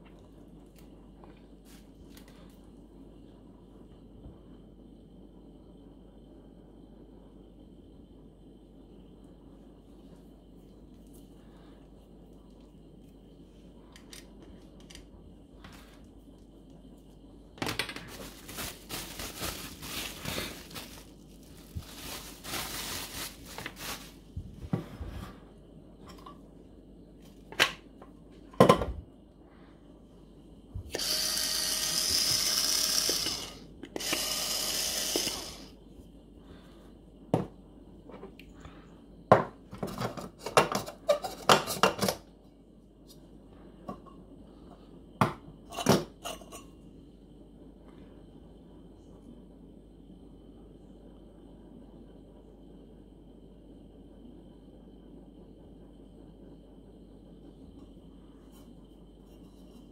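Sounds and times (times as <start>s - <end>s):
bubble wrap rustling: 18.0s - 24.7s
electric grinder motor whining: 30.9s - 35.7s.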